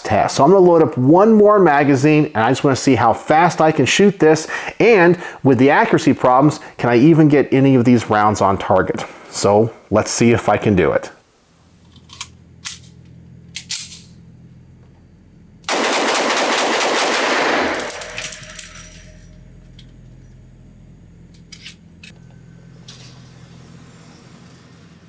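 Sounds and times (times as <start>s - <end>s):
sharp gun handling clicks: 13.5s - 14.1s
pistol shots ringing indoors: 15.6s - 19.2s.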